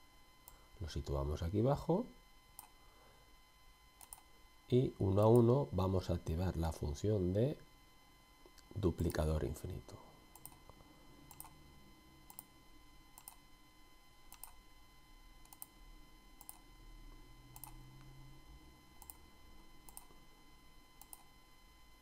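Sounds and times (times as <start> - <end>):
faint electrical hum: 0.0 - 22.0
computer mouse clicks: 4.0 - 4.3, 10.4 - 10.6, 11.3 - 11.6, 12.3 - 12.5, 13.2 - 13.4, 14.3 - 14.6, 15.4 - 15.7, 16.4 - 16.6, 17.6 - 18.1, 19.0 - 19.2, 19.9 - 20.1, 21.0 - 21.3.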